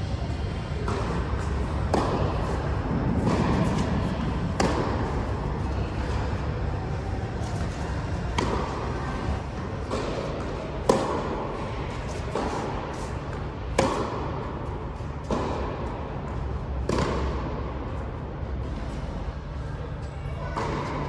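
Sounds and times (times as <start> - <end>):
tennis ball struck by rackets: 0.8 - 6.2, 7.5 - 9.0, 9.8 - 17.7.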